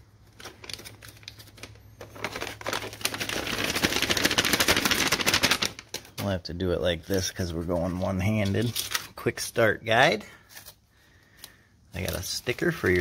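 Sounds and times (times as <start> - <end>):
plastic bag crinkling: 0.2 - 6.2.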